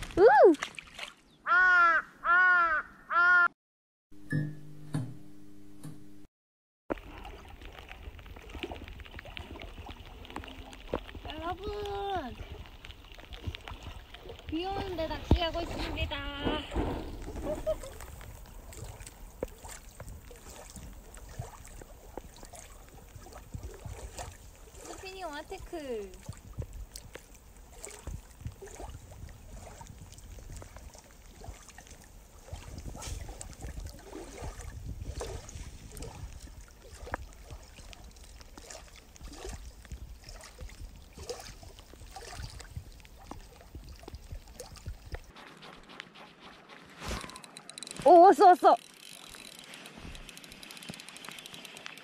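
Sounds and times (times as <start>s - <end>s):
small waves lapping: 0.0s - 1.4s, 6.9s - 52.0s
wind rumbling on microphone: 7.0s - 45.4s.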